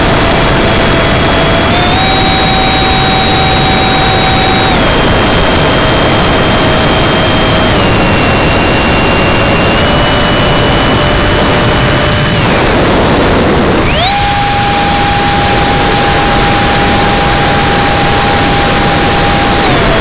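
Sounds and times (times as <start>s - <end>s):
electric ducted fan whining: 0.0s - 20.0s
rushing air noise: 0.0s - 20.0s.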